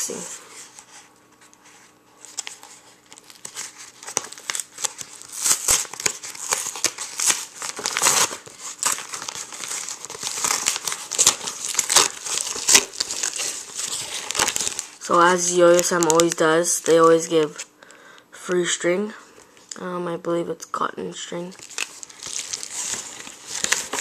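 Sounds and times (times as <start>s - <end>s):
paper mailer being torn open: 2.4s - 17.3s, 21.6s - 24.0s.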